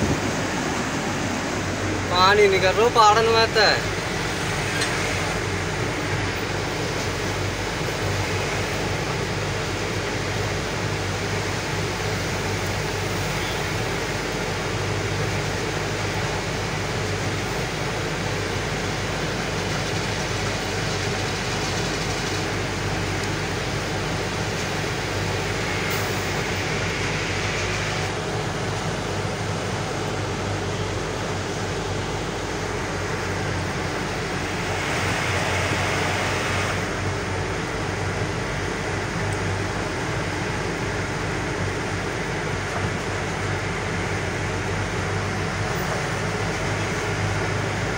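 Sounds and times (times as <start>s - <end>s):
wind noise: 0.0s - 1.8s
road noise: 0.0s - 47.9s
rushing noise: 0.0s - 47.9s
truck diesel engine drone: 0.0s - 47.9s.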